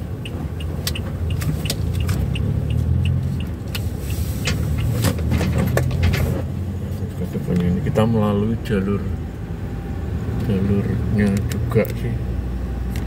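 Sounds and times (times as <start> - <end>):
light regular ticking: 0.0 - 4.9
road rumble and engine hum: 0.0 - 13.0.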